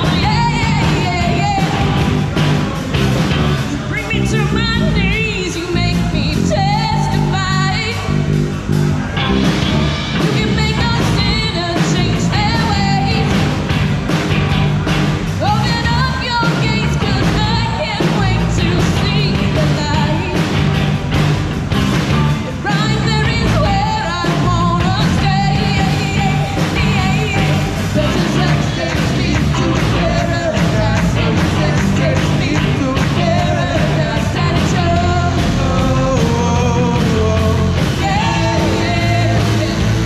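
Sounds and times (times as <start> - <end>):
woman singing: 0.0 - 2.2, 3.8 - 8.2, 10.2 - 13.6, 15.4 - 20.6, 22.6 - 40.0
live rock band playing: 0.0 - 40.0.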